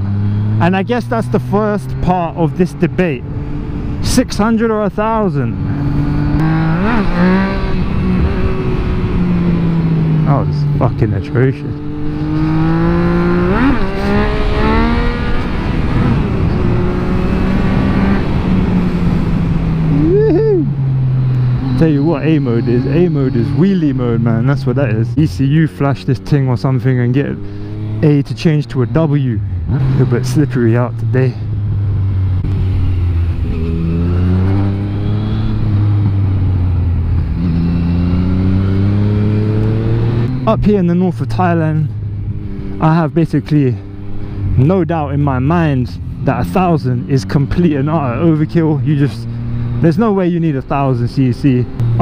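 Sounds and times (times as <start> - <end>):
motorcycle engine accelerating hard: 0.0 - 52.0
wind rumble on microphone: 5.5 - 10.2.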